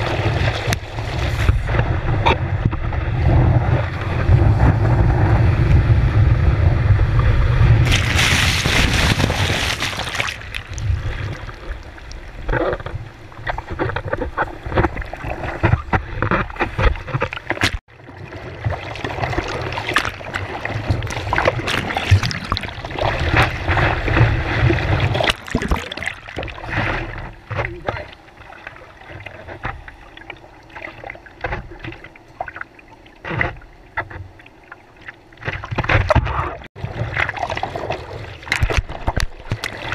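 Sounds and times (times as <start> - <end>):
seawater splashing against board: 7.8 - 11.6, 18.5 - 28.0.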